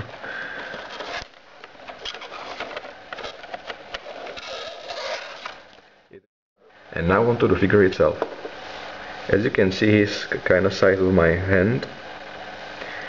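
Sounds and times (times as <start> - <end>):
card rustling and scraping: 0.0 - 5.8.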